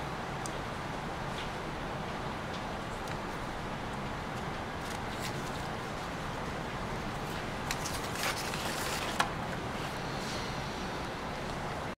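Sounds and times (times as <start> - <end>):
wrapping rustling: 7.7 - 9.2
steady hiss: 9.4 - 11.9.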